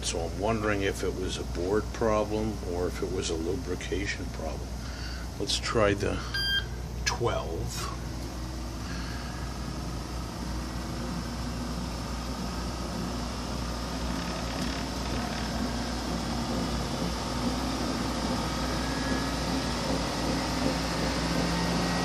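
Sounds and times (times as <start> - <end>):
treadmill motor and belt whirring: 0.0 - 22.0.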